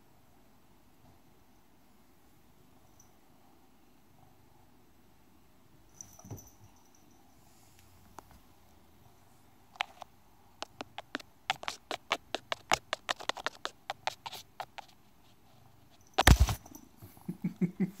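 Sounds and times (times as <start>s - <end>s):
sharp clicks and taps: 9.8s - 15.0s, 16.2s - 16.6s.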